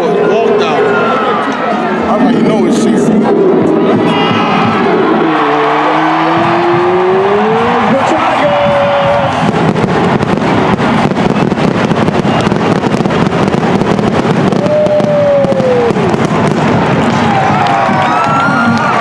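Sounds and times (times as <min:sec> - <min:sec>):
falling tone: 0:00.0 - 0:11.4
crowd din: 0:00.0 - 0:19.0
fireworks crackling: 0:06.4 - 0:19.0.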